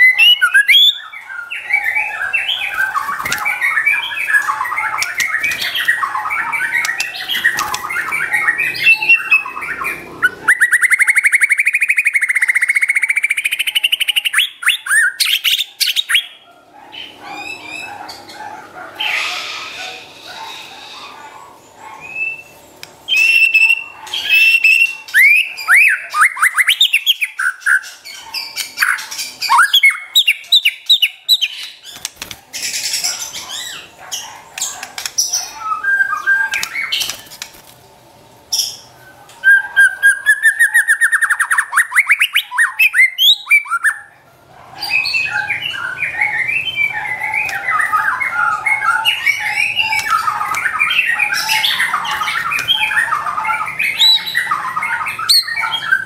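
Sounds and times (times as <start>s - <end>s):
bird singing whistled phrases: 0.0s - 16.3s, 23.1s - 27.8s.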